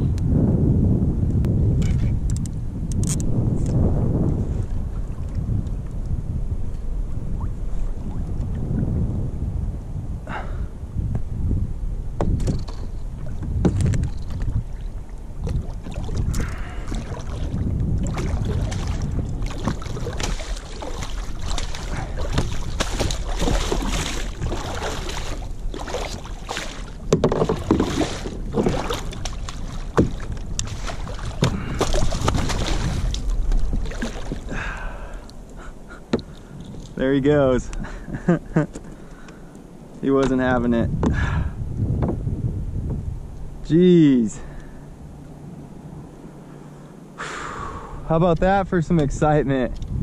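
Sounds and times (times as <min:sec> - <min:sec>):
wind on microphone: 0:00.0 - 0:39.4, 0:40.0 - 0:50.0
water splashing against kayak: 0:03.6 - 0:09.0, 0:12.2 - 0:39.4
sharp knocks and clicks: 0:12.2 - 0:14.4, 0:27.1 - 0:28.0.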